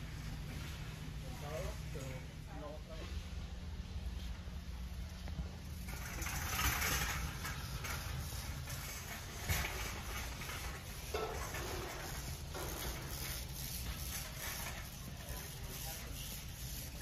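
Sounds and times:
steady low hum: 0:00.0 - 0:17.0
faint knocks and clatters: 0:05.2 - 0:15.0.

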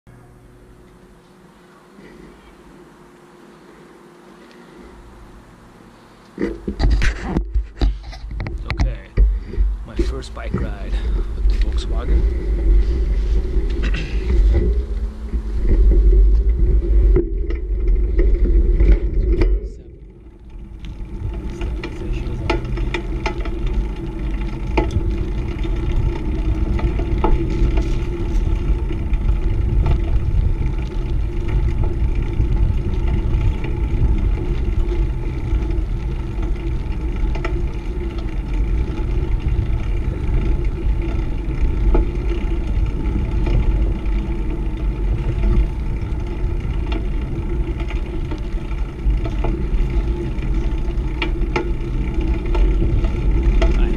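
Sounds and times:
bicycle tyres on asphalt: 0:00.1 - 0:53.9
bike clicks and rattles: 0:00.1 - 0:53.9
wind rumble on microphone: 0:06.4 - 0:53.9.

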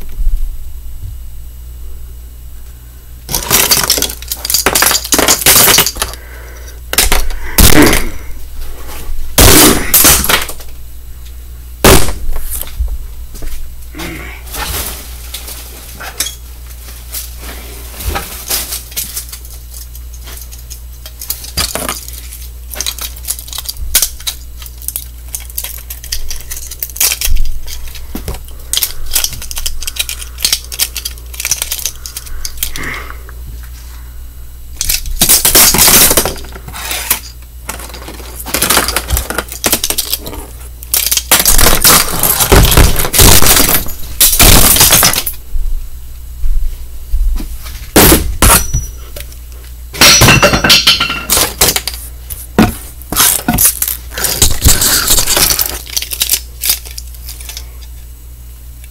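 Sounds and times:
breaking impacts: 0:03.3 - 0:06.2, 0:06.9 - 0:08.3, 0:09.4 - 0:10.7, 0:11.8 - 0:12.3, 0:18.0 - 0:33.0, 0:34.8 - 0:45.4, 0:47.9 - 0:49.0, 0:49.9 - 0:52.0, 0:52.6 - 0:57.6
plastic pieces clicking and clattering: 0:03.3 - 0:06.2, 0:18.5 - 0:32.8, 0:34.8 - 0:45.4, 0:50.0 - 0:57.6.

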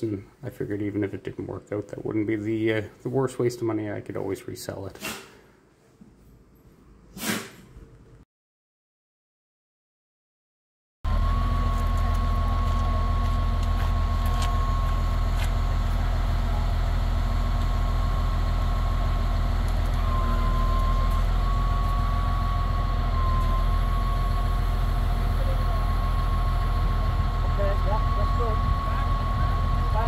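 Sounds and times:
heavy machine engine rumble with whine: 0:11.1 - 0:30.0.

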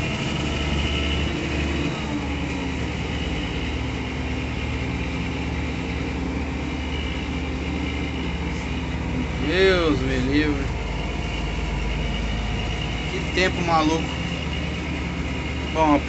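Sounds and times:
steady low whine: 0:00.0 - 0:16.0
tractor engine running: 0:00.0 - 0:16.0.

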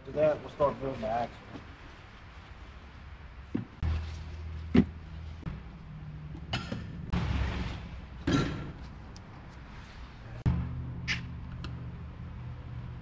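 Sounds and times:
parts knocking and thumping: 0:08.2 - 0:09.0.

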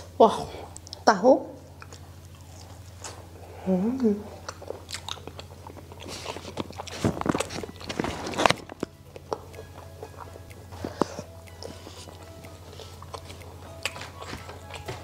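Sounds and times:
wet chewing: 0:01.7 - 0:15.0
fingers picking at fried food: 0:04.4 - 0:15.0.

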